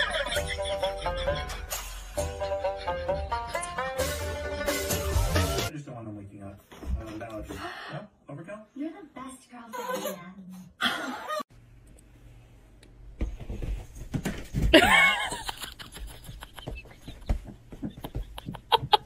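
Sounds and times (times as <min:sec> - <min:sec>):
person laughing: 0:14.7 - 0:19.0.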